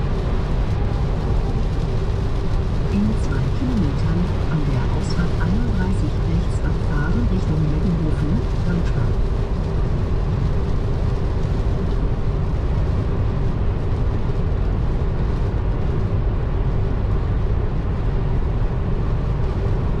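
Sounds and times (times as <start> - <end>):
car road and wind noise: 0.0 - 20.0
faint steady hum: 0.0 - 20.0.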